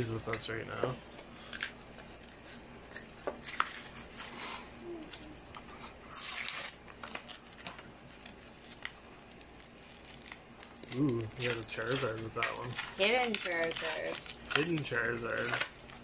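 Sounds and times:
packaging crinkling and tearing: 1.4s - 4.3s, 5.0s - 16.0s
cardboard peeling from plastic: 6.0s - 16.0s.

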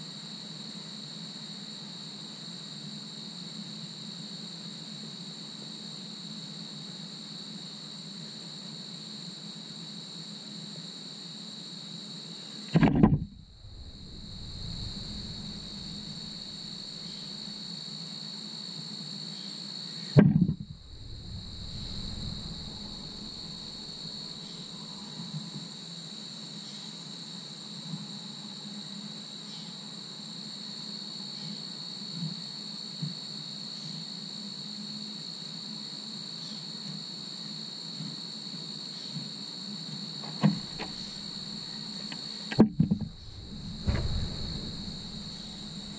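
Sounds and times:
insects chirring: 12.4s - 18.3s, 19.1s - 25.2s, 40.0s - 45.9s
sharp knocks: 12.8s - 17.1s, 20.2s - 24.1s, 40.4s - 41.2s, 42.5s - 45.9s
loud thump: 12.8s - 17.5s, 20.2s - 24.4s, 40.4s - 41.5s, 42.5s - 45.9s
low steady hum: 12.8s - 17.7s, 20.2s - 25.0s, 40.4s - 41.7s, 42.5s - 45.9s.

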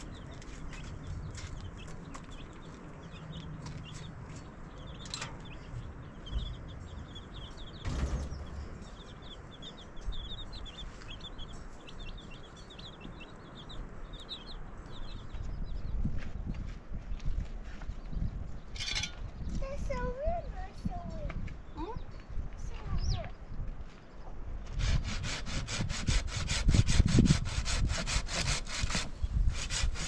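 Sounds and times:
chicks peeping: 0.0s - 24.3s
thump: 7.8s - 8.6s.

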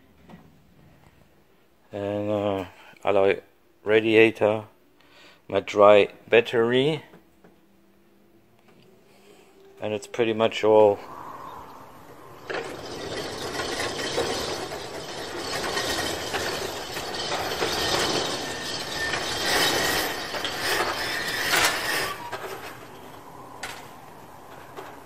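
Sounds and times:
overhead door rattling and rumbling: 11.6s - 25.0s.

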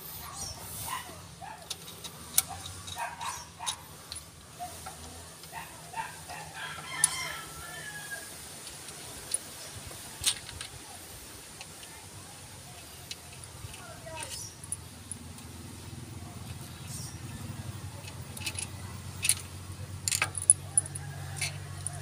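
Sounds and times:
rooster crowing: 6.3s - 8.4s, 20.6s - 22.0s.

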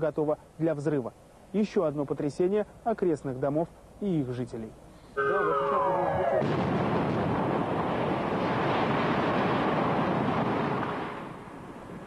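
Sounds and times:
tone gliding down in pitch: 5.2s - 6.5s
demolition blast: 6.4s - 12.0s
rumble of buildings collapsing: 6.4s - 12.0s.

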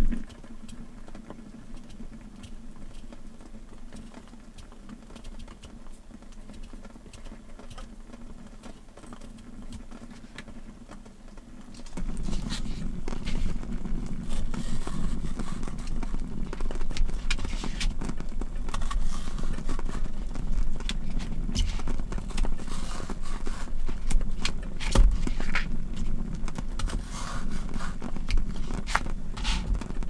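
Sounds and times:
low steady rumble: 0.0s - 30.0s
knife scraping vegetable: 26.9s - 29.8s.

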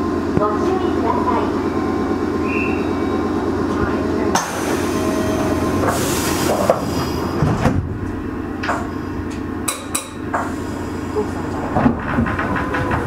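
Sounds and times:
train wheels rumbling: 0.0s - 13.0s
sharp clacks and knocks: 11.6s - 13.0s.

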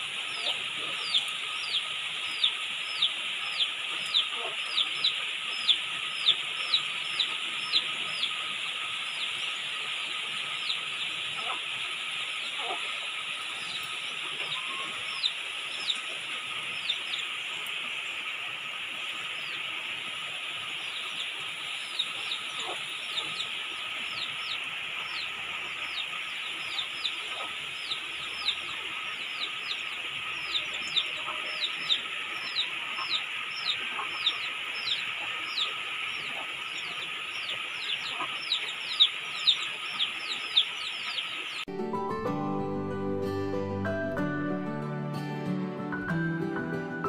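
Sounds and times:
bird chirping: 0.0s - 11.6s, 13.5s - 18.2s, 20.7s - 41.7s
rain hissing: 0.0s - 41.7s.

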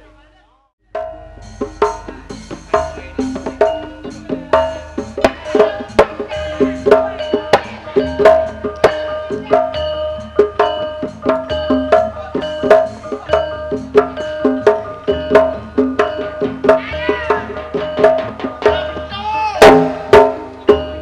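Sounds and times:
hand-drum strokes: 0.9s - 21.0s
ringing struck metal tones: 0.9s - 21.0s.

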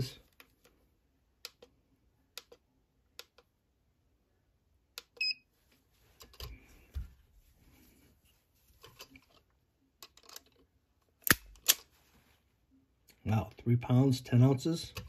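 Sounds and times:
soft rustling: 5.5s - 9.5s, 11.9s - 12.7s.

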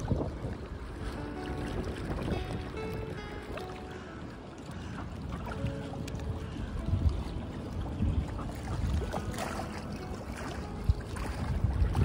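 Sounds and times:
choppy water splashing: 0.0s - 12.0s
wind buffeting microphone: 0.0s - 12.0s.

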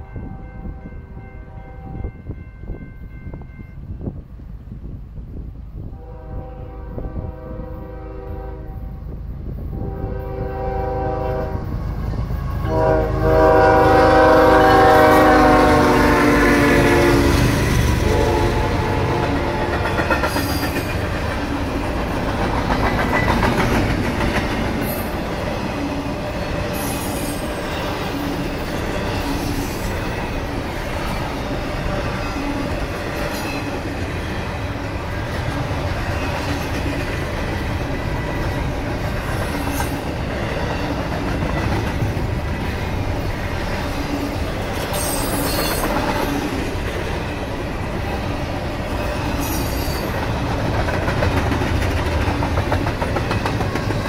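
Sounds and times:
train cars rolling on rails: 0.0s - 54.0s
locomotive horn blasts: 5.9s - 11.8s, 12.6s - 19.8s.

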